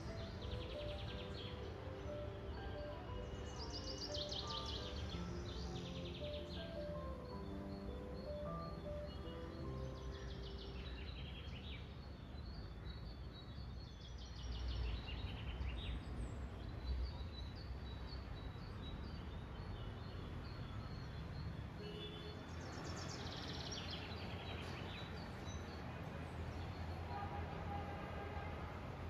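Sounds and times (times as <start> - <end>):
birds chirping in rapid trills: 0.0 - 16.1
low urban rumble: 0.0 - 29.0.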